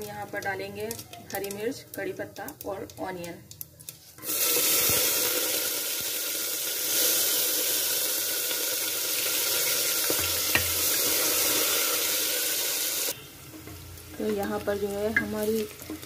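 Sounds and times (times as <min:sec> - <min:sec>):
vegetables sizzling in hot oil: 0:00.0 - 0:16.0
wooden spoon knocking on pot: 0:13.6 - 0:16.0.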